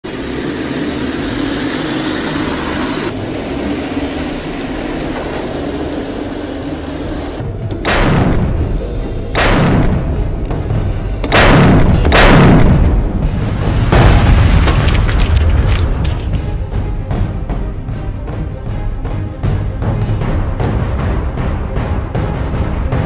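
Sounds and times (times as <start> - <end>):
steady rumbling: 0.0 - 20.6
cannon shot booms: 9.4 - 10.2, 11.3 - 13.0.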